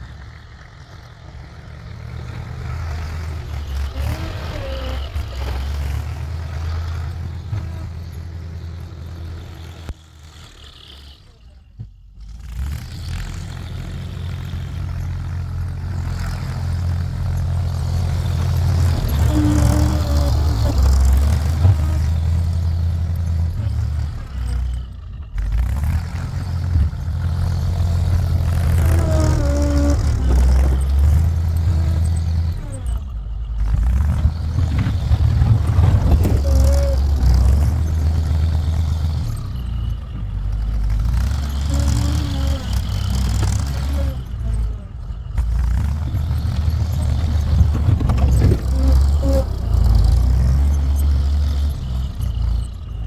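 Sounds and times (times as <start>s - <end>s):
wheel loader diesel engine: 0.0s - 53.0s.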